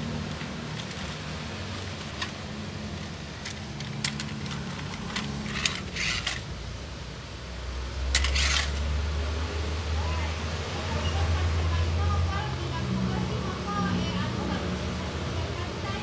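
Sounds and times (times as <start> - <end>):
plastic toy clicks and rattles: 1.9 - 6.5, 8.1 - 8.8.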